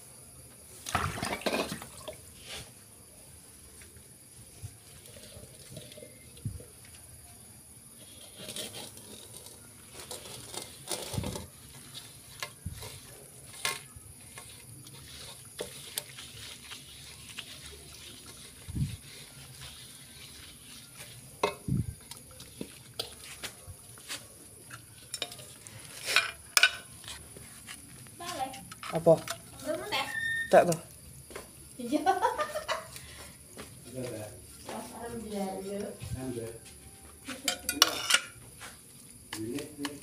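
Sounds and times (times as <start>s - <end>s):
scrubbing metal wok: 8.2s - 27.8s.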